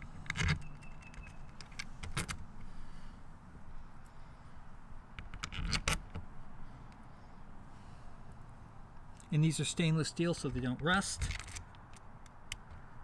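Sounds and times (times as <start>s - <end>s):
metal bolts and washers clinking: 0.0s - 2.4s, 10.4s - 12.7s.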